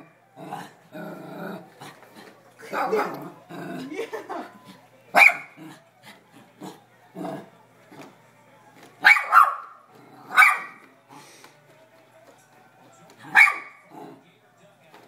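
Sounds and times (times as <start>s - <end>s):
puppy barking: 5.2s - 5.6s, 9.0s - 10.8s, 13.3s - 13.8s.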